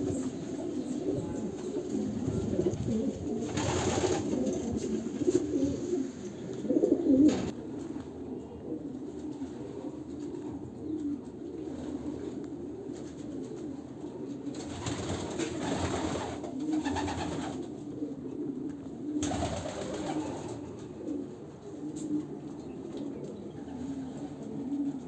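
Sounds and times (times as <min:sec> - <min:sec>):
pigeons cooing: 0:00.0 - 0:25.0
rustling: 0:00.1 - 0:07.5.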